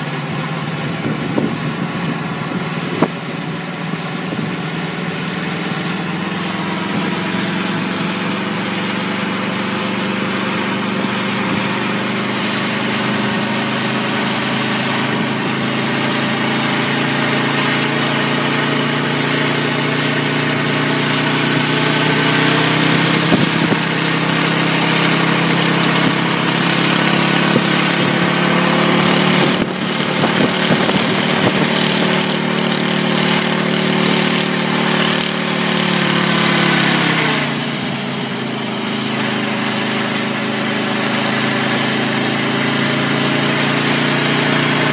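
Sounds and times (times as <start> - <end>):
helicopter engine running: 0.0 - 44.9.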